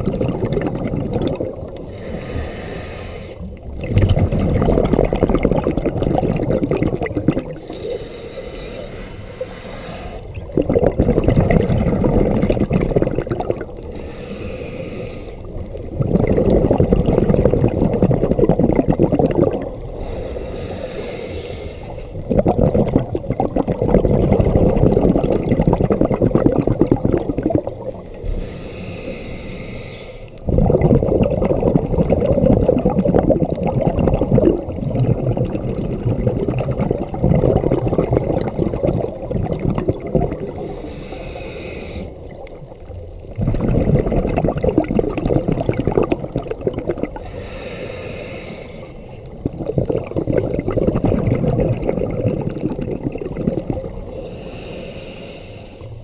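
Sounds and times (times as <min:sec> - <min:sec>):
exhaled bubbles rushing: 0:00.0 - 0:08.1, 0:10.2 - 0:14.0, 0:15.4 - 0:20.5, 0:21.9 - 0:29.2, 0:30.4 - 0:47.4, 0:49.2 - 0:54.2
regulator inhale hiss: 0:01.8 - 0:03.6, 0:07.6 - 0:10.3, 0:13.8 - 0:15.7, 0:19.9 - 0:22.3, 0:28.0 - 0:30.5, 0:40.4 - 0:42.5, 0:47.2 - 0:49.4, 0:54.0 - 0:56.0.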